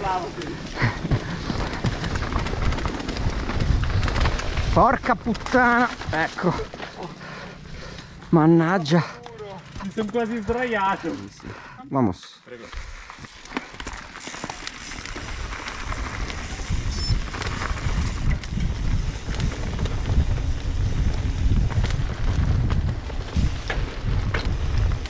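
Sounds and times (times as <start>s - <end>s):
wind buffeting microphone: 0.0s - 6.2s, 15.3s - 25.0s
bike knocks and rattles: 0.0s - 8.2s, 9.2s - 11.2s, 13.3s - 25.0s
tyres rumbling: 0.0s - 11.8s.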